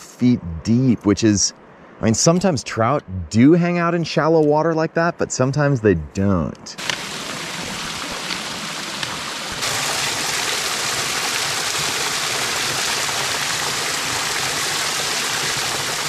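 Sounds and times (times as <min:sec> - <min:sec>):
water rushing over rocks: 0:06.8 - 0:16.0.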